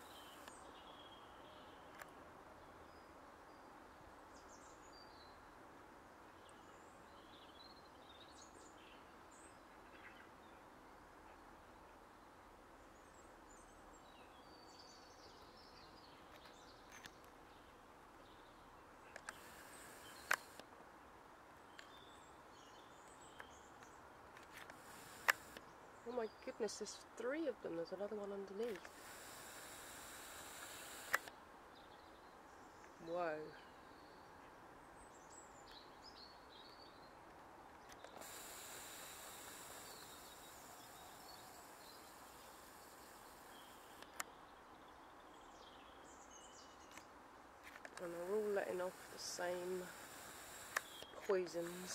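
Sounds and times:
faint bird chirps: 0.0 - 2.0
background hiss: 0.0 - 51.9
sharp clicks: 19.1 - 20.7, 24.4 - 25.6, 28.2 - 31.4, 37.9 - 41.7, 43.9 - 44.3, 47.7 - 51.9.

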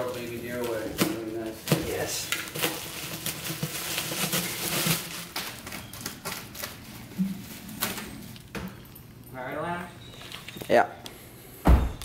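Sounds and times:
bubble wrap crinkling: 0.0 - 9.2.

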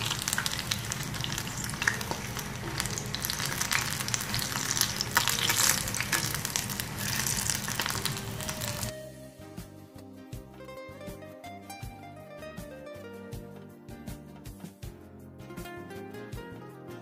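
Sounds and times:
oil sizzling and crackling: 0.0 - 8.9
plucked string music: 0.0 - 17.0.

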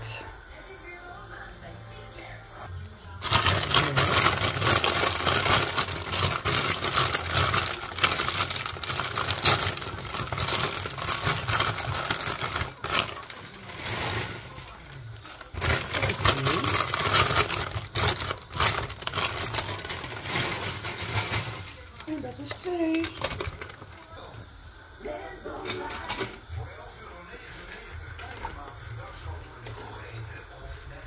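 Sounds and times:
plastic bag crinkling: 3.1 - 24.3.

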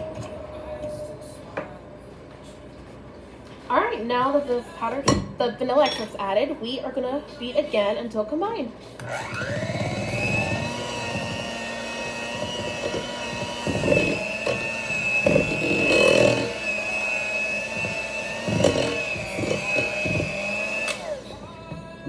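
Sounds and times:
electric hand mixer whining: 9.0 - 21.6.

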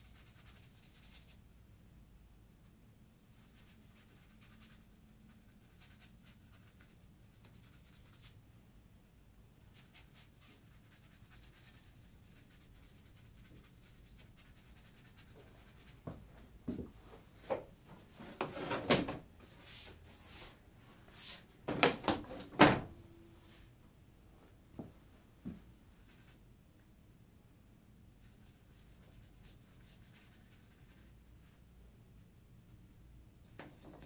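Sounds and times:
wooden board knocks and scrapes: 18.2 - 19.2.

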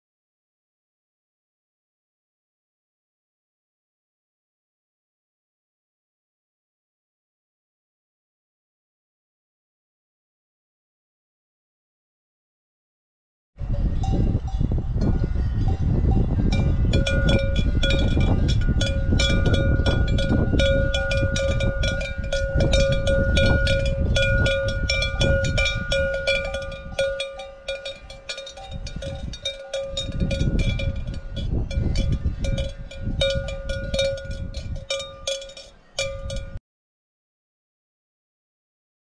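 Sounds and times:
cowbell clanking: 13.7 - 36.6.

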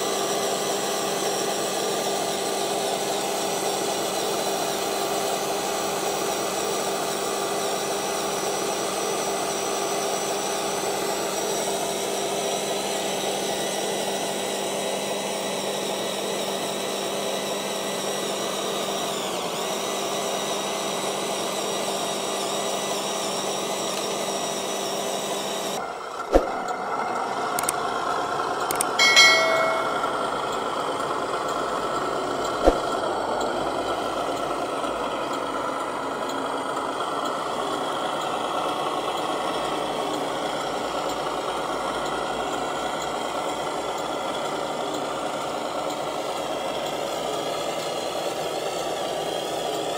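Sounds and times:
sharp clicks: 28.7 - 29.0
short tonal burst: 28.8 - 30.6.

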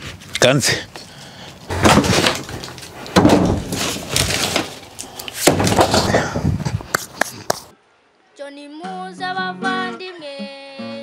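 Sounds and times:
firewood logs knocking together: 1.7 - 7.7.

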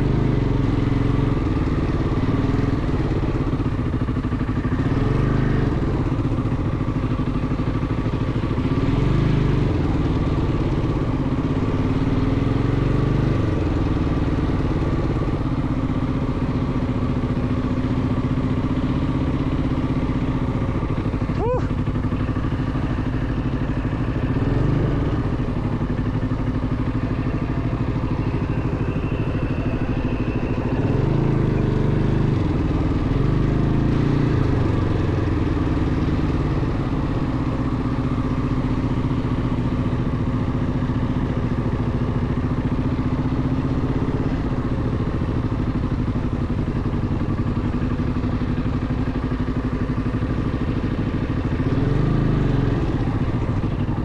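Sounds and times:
atv engine revving: 0.0 - 16.8, 17.8 - 54.0.

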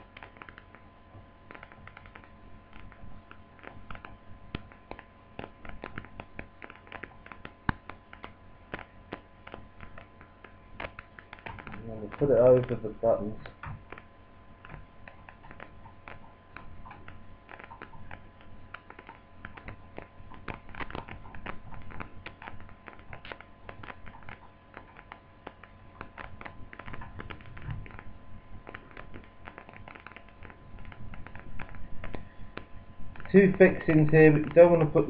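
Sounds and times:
plastic laptop parts clicking: 0.2 - 0.7, 1.5 - 2.9, 16.8 - 28.0.

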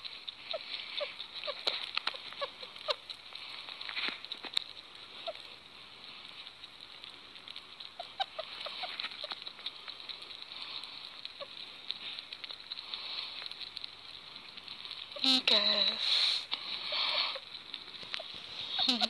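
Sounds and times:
steady hiss: 0.0 - 19.0
squeaky chirps: 18.2 - 19.0.

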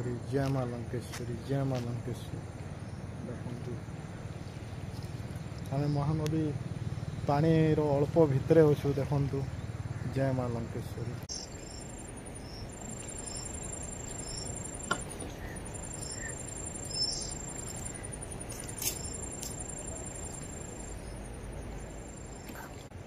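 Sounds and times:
insects trilling: 0.0 - 23.0
low background rumble: 0.0 - 23.0
bird chirps: 11.2 - 22.8.

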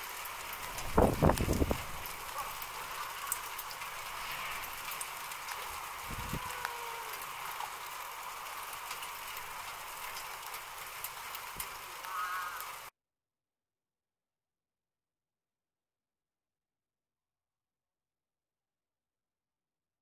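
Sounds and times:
outdoor background hiss: 0.0 - 12.9
faint ticks: 1.2 - 7.8.

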